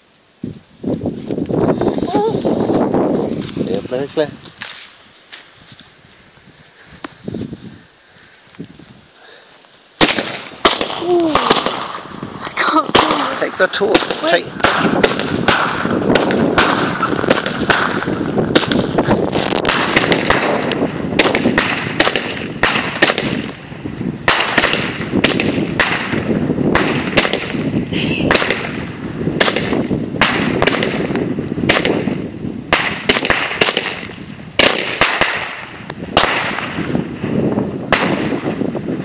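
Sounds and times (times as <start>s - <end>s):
fireworks bangs and crackles: 10.0s - 39.0s.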